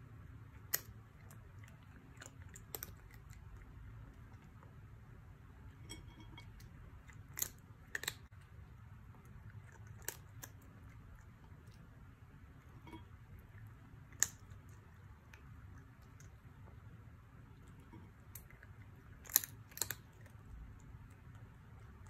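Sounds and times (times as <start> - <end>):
faint low hum: 0.0 - 22.0
cat crunching dry kibble: 0.6 - 4.6, 6.3 - 8.5, 9.3 - 11.7, 17.7 - 22.0.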